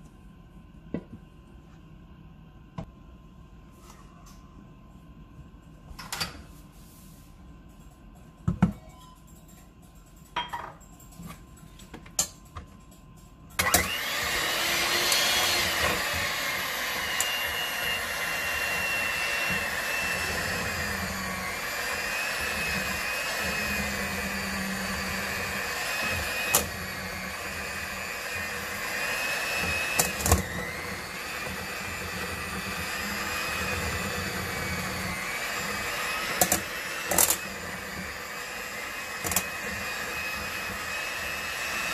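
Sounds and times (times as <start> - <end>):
electric hand mixer whining: 13.6 - 41.9.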